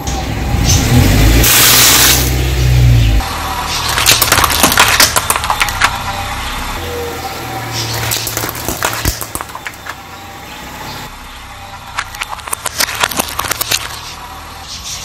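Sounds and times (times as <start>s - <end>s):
car engine running: 0.2s - 15.0s
plastic containers crackling and snapping: 3.9s - 6.0s, 8.0s - 10.0s, 12.0s - 14.0s.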